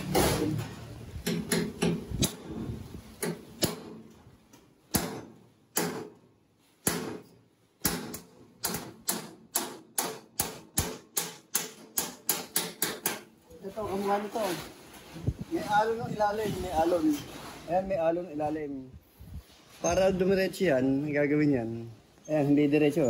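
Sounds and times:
hammer tapping on sheet metal: 0:01.2 - 0:02.4, 0:06.8 - 0:13.3.

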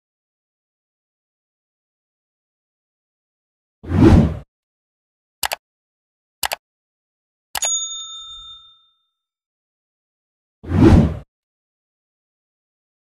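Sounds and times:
whoosh: 0:03.9 - 0:04.4, 0:10.7 - 0:11.2
bell ding: 0:07.6 - 0:09.2.

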